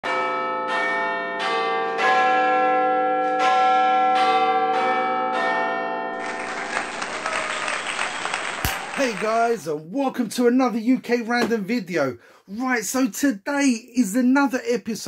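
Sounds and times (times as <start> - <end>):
dense crackling noise: 6.2 - 9.6.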